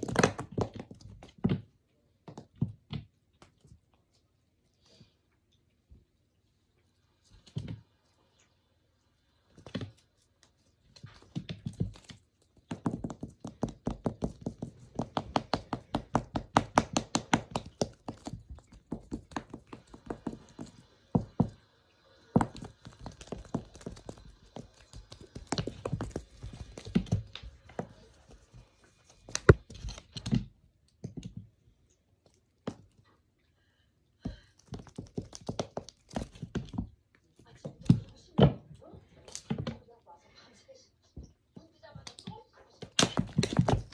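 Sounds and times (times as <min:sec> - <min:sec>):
knocks on wooden floor: 0:12.7 - 0:21.6.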